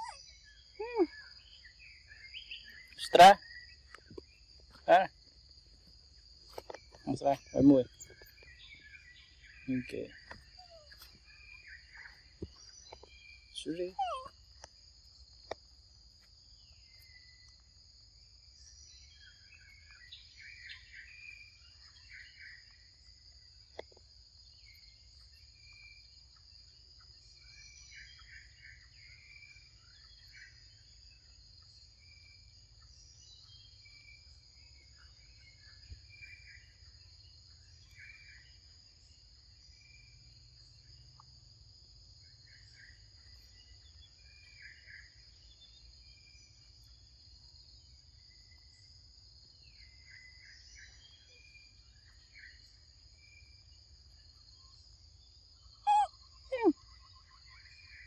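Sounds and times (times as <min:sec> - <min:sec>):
bird chirps: 0:00.0 - 0:05.1, 0:06.5 - 0:14.3, 0:55.6 - 0:58.0
insects droning: 0:00.0 - 0:58.0.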